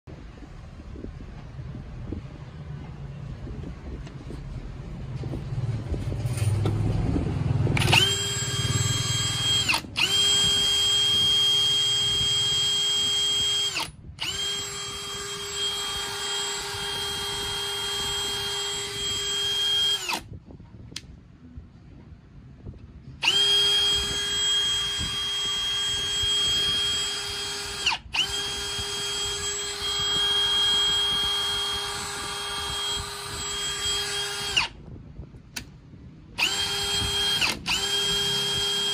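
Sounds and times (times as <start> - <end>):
drill motor whine: 7.8 - 20.3, 23.2 - 34.8, 36.4 - 38.9.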